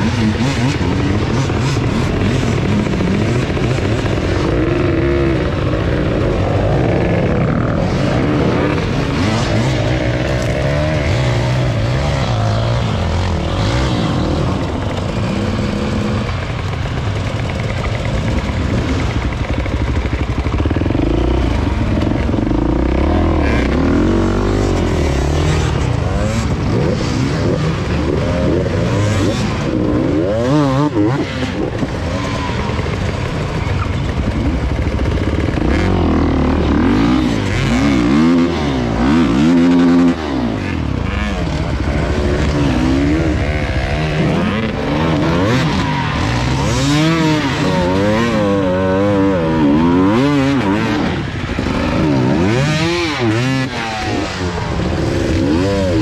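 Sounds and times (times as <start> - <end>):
dirt bike engines revving: 0.0 - 56.0
wheels spinning in loose dirt: 0.0 - 56.0.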